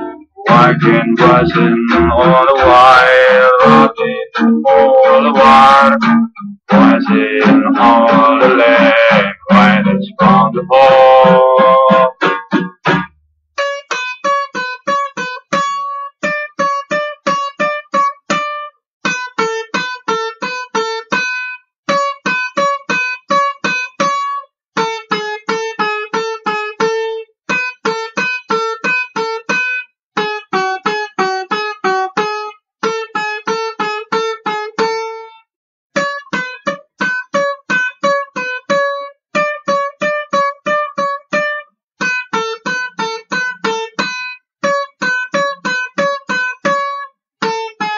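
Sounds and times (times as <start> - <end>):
country banjo tune: 0.0 - 47.9.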